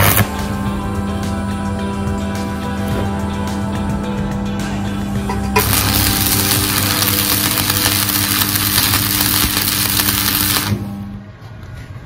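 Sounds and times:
welding arc hiss: 0.0 - 0.3, 5.6 - 10.8.

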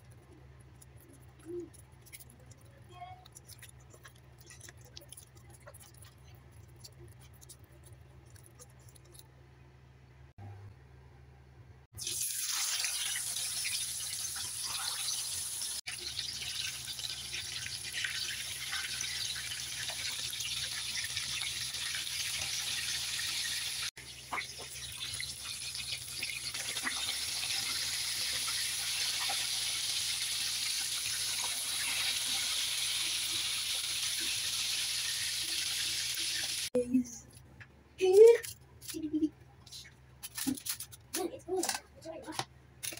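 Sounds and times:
fish deep-frying in hot oil: 12.0 - 36.8.

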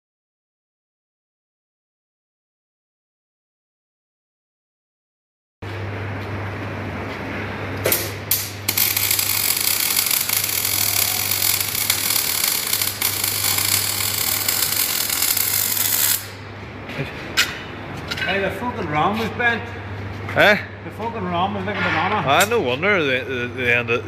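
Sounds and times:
steady low hum: 5.6 - 24.0
welding arc crackling: 8.3 - 16.4.

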